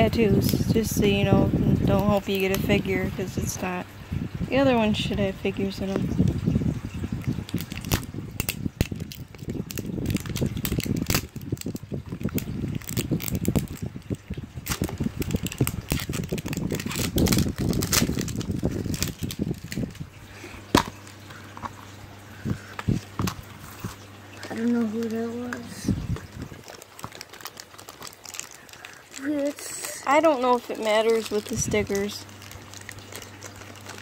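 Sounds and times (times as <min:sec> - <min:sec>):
plastic wrap crinkling: 0:07.3 - 0:34.0.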